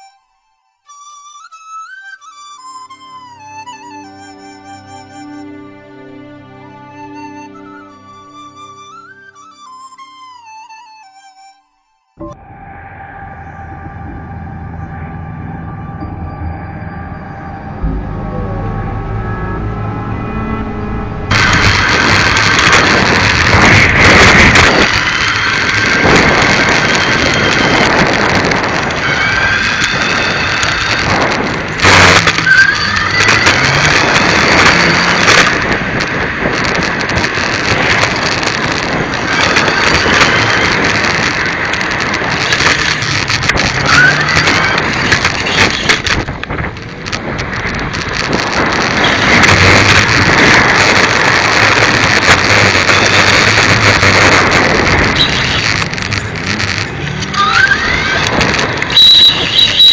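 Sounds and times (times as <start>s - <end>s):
short rising squeaks: 12.2s - 23.5s
wind buffeting microphone: 12.2s - 59.9s
tyre and road rumble: 13.2s - 59.9s.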